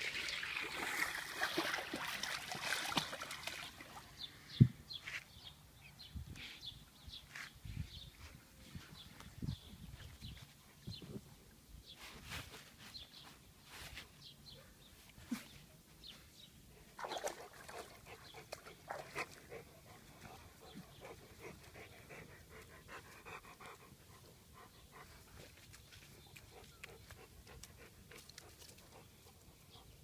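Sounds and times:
dog panting: 0:19.2 - 0:25.5.

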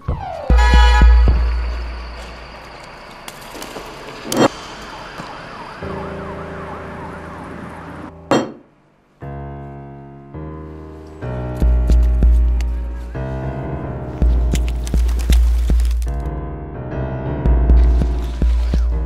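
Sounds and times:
wavering siren-like wail: 0:04.4 - 0:08.2.

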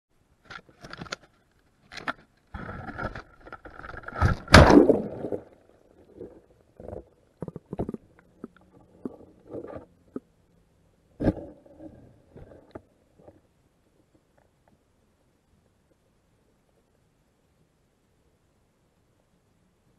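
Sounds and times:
water splashing: 0:02.6 - 0:10.0
rush of bubbles: 0:04.1 - 0:06.4
underwater knocks and clicks: 0:06.8 - 0:10.3.

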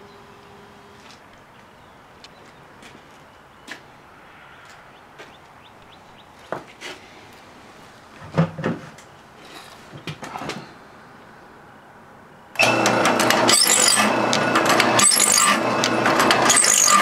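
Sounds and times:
metallic clacks and rasps: 0:12.6 - 0:17.0
saw filer machine humming: 0:12.6 - 0:17.0.

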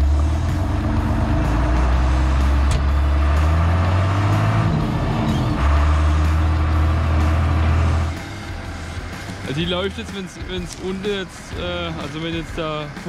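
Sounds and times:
tractor engine running: 0:00.0 - 0:13.0.

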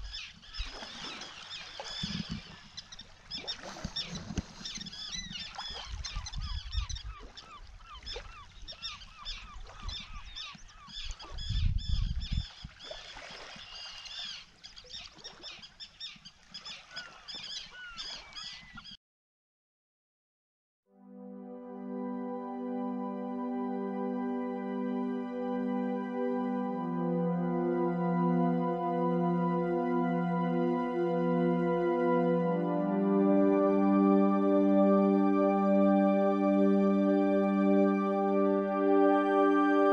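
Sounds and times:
waterbirds calling: 0:00.0 - 0:19.0.

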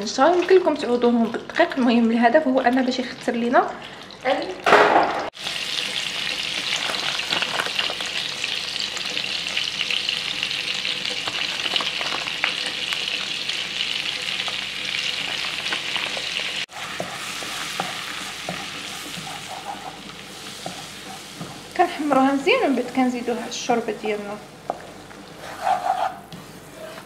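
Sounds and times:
butter sizzling in a frying pan: 0:05.3 - 0:25.4
spatula scraping pan: 0:16.7 - 0:22.9, 0:25.3 - 0:27.0.

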